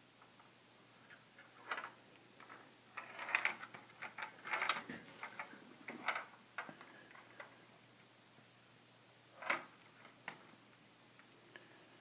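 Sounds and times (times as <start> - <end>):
ball rattling in plastic maze: 1.5 - 6.7.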